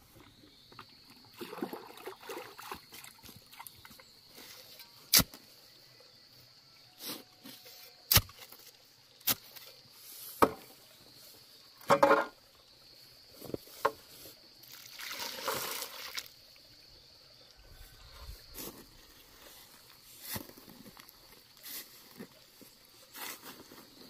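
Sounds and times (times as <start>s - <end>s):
water pouring into dry mix: 14.6s - 16.6s.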